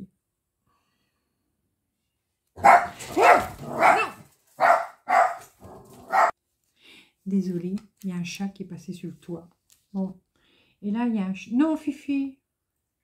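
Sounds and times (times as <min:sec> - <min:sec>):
dog barking loudly: 0:02.6 - 0:06.3.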